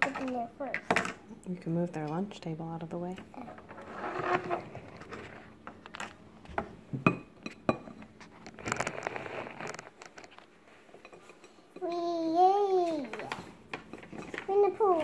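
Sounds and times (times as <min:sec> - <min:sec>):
rustling: 0:08.2 - 0:11.4.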